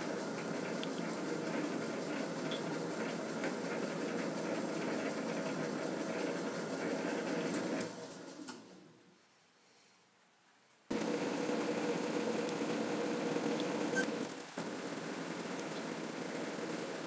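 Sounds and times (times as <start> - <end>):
metal lathe running: 10.9 - 17.0.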